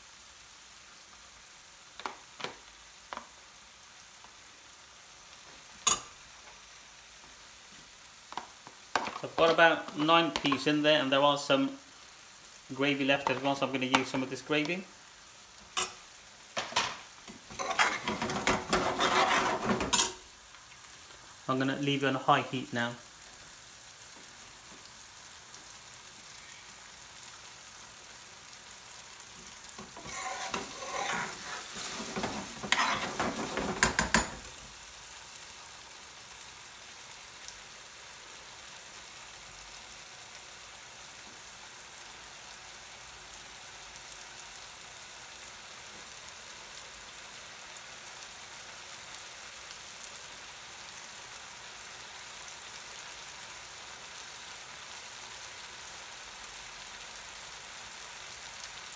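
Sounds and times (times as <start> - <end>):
curry sizzling in a pan: 0.0 - 58.9
spoon clanking against pan: 5.8 - 6.1, 15.8 - 16.0, 16.6 - 20.2, 29.8 - 34.5
metal spoon scraping through gravy: 17.5 - 20.1, 29.9 - 34.2.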